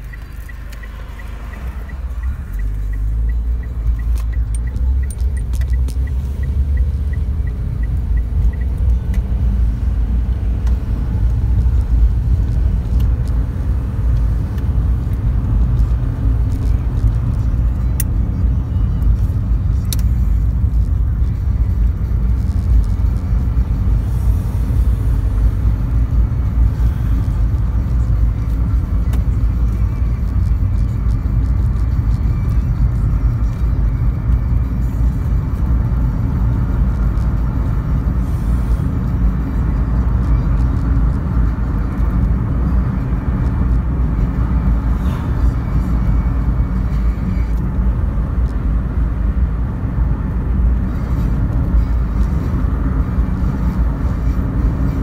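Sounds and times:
car engine and tyre rumble: 0.0s - 55.0s
turn signal ticking: 0.0s - 55.0s.

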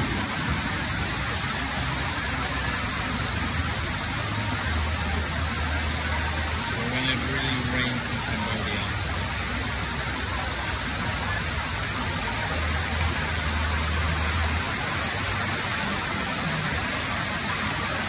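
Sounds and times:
heavy rain hissing on street: 0.0s - 18.0s
water pouring off awning: 0.0s - 18.0s.

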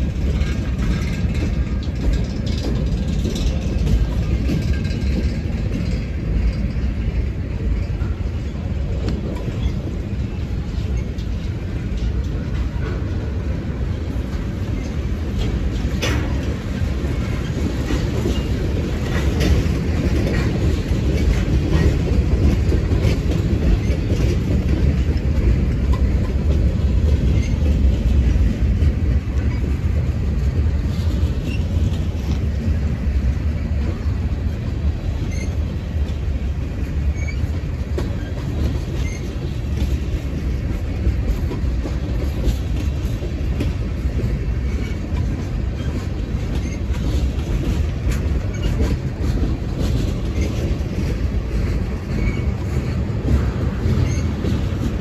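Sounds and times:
freight train wheels rumbling: 0.0s - 55.0s
wheel squeals: 35.2s - 35.9s, 37.0s - 39.6s, 44.6s - 47.2s, 52.1s - 54.7s.

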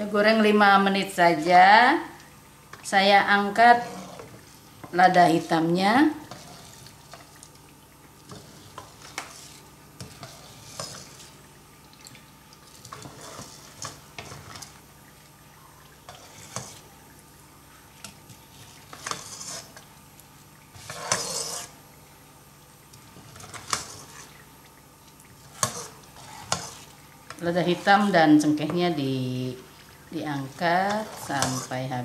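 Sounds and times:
oil sizzling: 1.2s - 32.0s
utensils scraping a wok: 3.5s - 4.5s, 6.2s - 6.9s, 8.3s - 11.3s, 12.8s - 14.6s, 16.1s - 16.9s, 18.2s - 19.8s, 20.7s - 21.8s, 23.2s - 24.4s, 25.4s - 27.0s, 30.6s - 31.9s.

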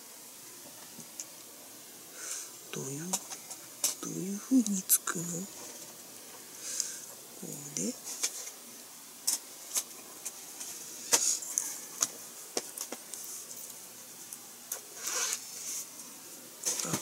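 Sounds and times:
soft rustle: 5.4s - 17.0s.

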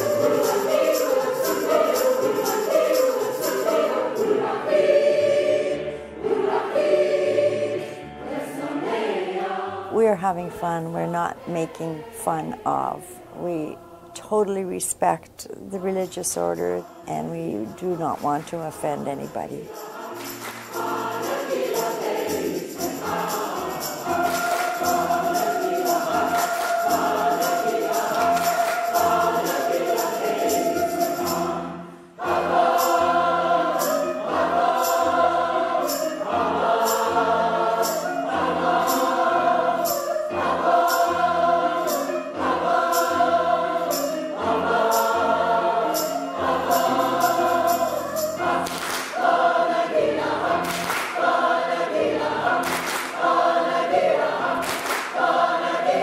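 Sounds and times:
choir singing gospel song: 0.0s - 56.0s
sharp rhythmic hits: 19.6s - 31.6s.

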